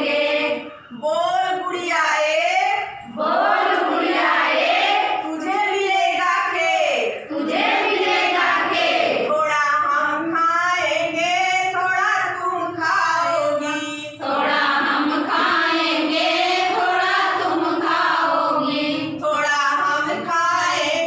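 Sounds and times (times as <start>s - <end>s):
women singing in unison: 0.0s - 0.8s, 3.0s - 21.0s.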